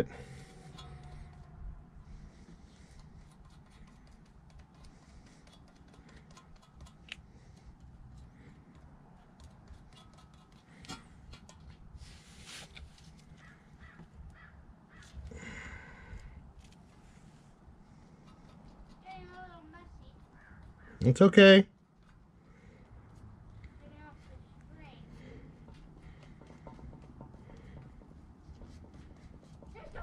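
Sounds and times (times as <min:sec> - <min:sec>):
low steady rumble: 0:00.0 - 0:04.2.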